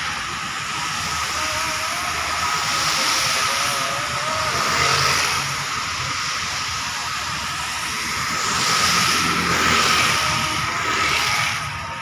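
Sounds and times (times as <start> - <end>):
thin steady high tone: 0.0 - 7.7
tyres hissing on wet road: 0.0 - 12.0
vehicle engines: 0.0 - 12.0.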